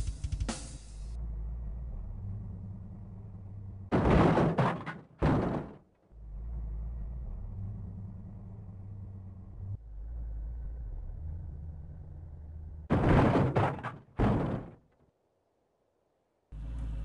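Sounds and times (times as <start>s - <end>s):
low rumble inside a car: 16.5s - 17.0s.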